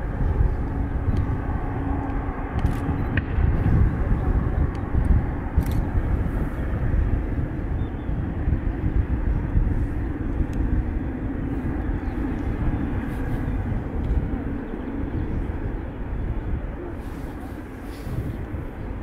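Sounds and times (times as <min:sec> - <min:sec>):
jet engines rumbling: 0:00.0 - 0:19.0.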